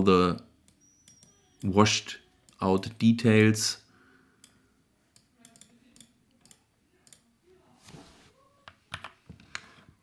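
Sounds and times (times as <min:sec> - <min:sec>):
computer mouse clicks: 0:04.4 - 0:07.2.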